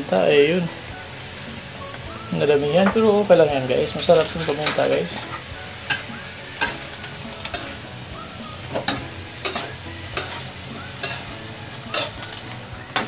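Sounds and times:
food sizzling in wok: 0.0 - 13.0
spatula clinking on wok: 4.0 - 7.8, 8.7 - 13.0.

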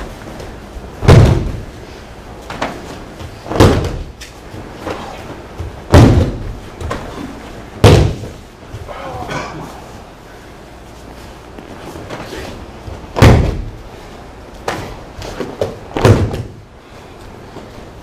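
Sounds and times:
body slapping onto mats: 0.0 - 1.8, 2.4 - 8.9, 11.6 - 13.9, 14.6 - 16.7.

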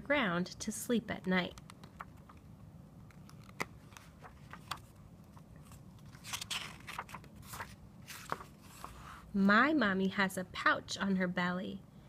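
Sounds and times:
paper page rustling: 3.0 - 9.3.

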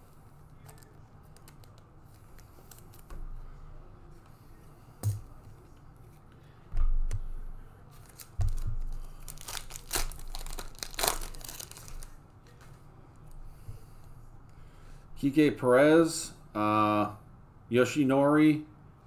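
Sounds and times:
foil wrapper tearing and crinkling: 8.0 - 12.2.

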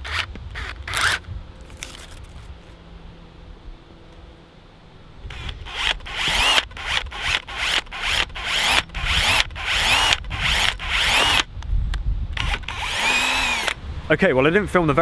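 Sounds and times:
cordless drill boring into plastic: 5.3 - 11.5, 12.4 - 13.8.

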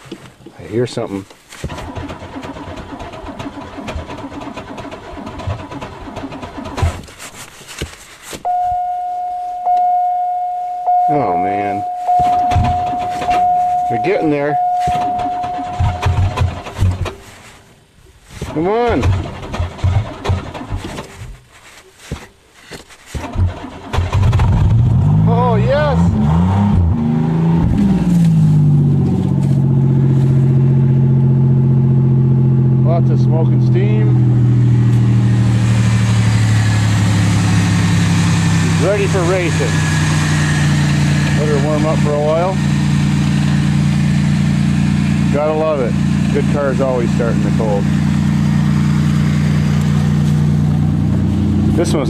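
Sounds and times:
car engine cranking: 1.1 - 52.0
car engine fast idle: 1.7 - 7.0, 34.2 - 52.0
high-pitched electronic tone: 8.5 - 16.6.

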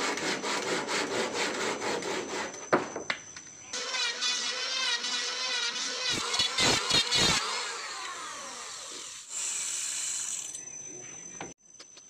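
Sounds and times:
electric planer shaving wood: 3.8 - 10.0
high whir: 3.8 - 10.6
motor winding down whine: 3.8 - 10.7.

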